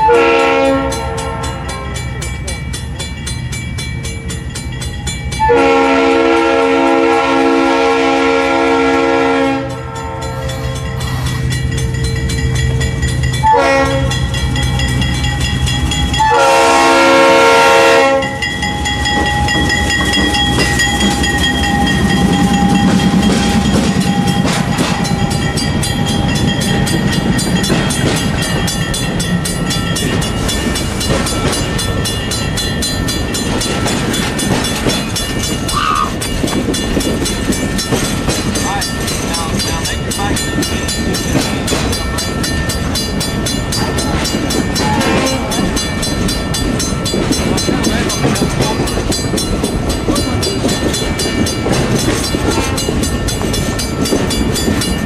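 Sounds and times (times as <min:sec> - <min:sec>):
train air horn blasts: 0:00.0 - 0:02.0, 0:05.4 - 0:11.5, 0:13.4 - 0:14.2, 0:16.2 - 0:18.5, 0:44.8 - 0:45.6
diesel locomotive engine rumbling: 0:00.0 - 0:55.0
train wheels clicking over rails: 0:18.2 - 0:55.0.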